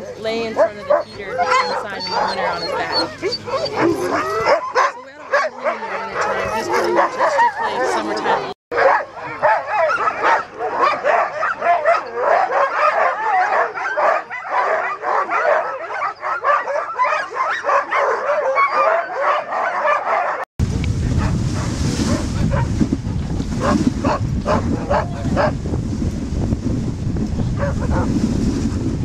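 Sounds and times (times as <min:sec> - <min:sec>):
sled dogs yelping and howling: 0:00.0 - 0:20.4, 0:27.6 - 0:28.1
wind rumbling on microphone: 0:20.6 - 0:29.0.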